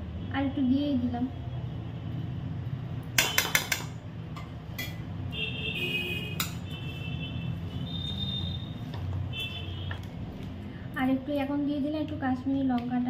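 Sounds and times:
spoon clinking against dishes: 3.2 - 5.1.

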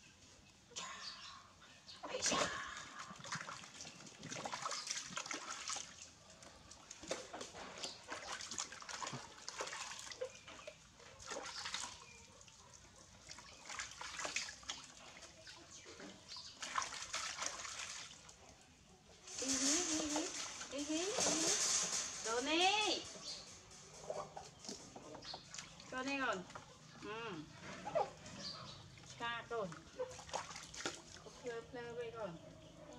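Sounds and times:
water splashing in a plastic basin: 2.0 - 18.4, 19.2 - 23.3, 24.4 - 27.0, 29.0 - 31.5.

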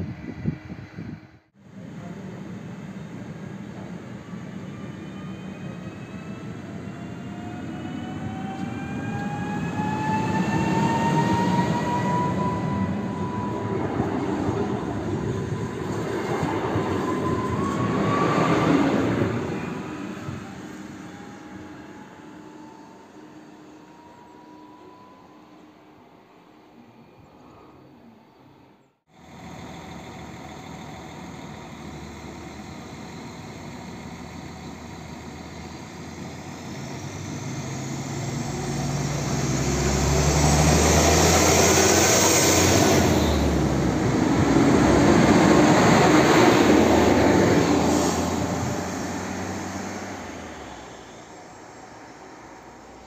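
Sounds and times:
diesel train engine: 0.0 - 53.0.

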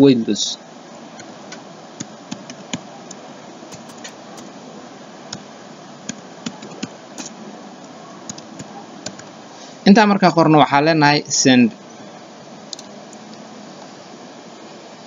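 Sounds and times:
background hiss: 0.0 - 15.0
keyboard typing clicks: 3.7 - 4.5, 8.3 - 9.3.

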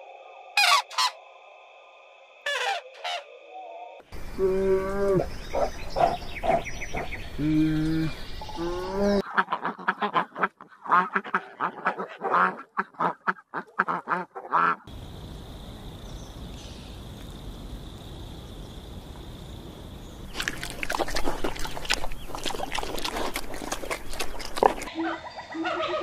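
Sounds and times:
duck quacking: 0.6 - 1.2, 9.2 - 14.9
steady hiss: 14.9 - 20.3.

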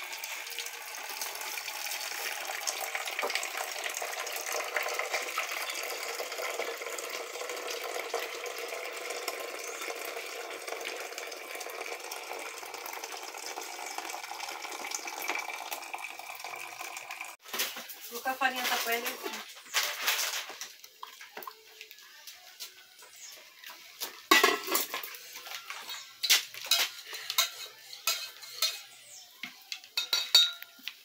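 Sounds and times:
coffee dripping into pot: 0.0 - 17.4
water pouring from kettle: 0.0 - 17.4.

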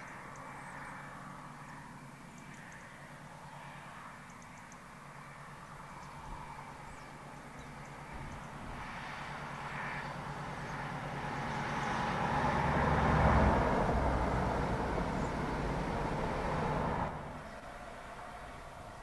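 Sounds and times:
diesel train engine passing: 9.1 - 19.0.

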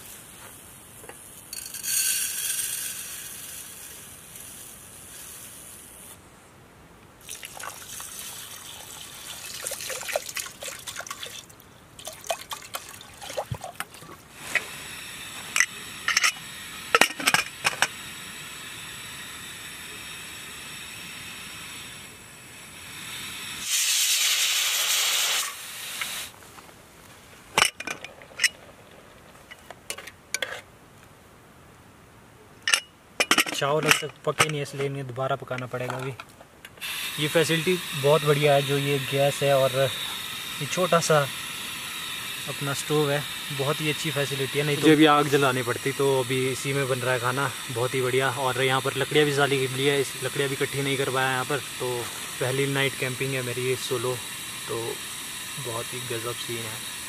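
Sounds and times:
loud rushing hiss: 0.0 - 6.3, 14.2 - 26.5, 36.8 - 57.0
steady hiss: 0.0 - 57.0.

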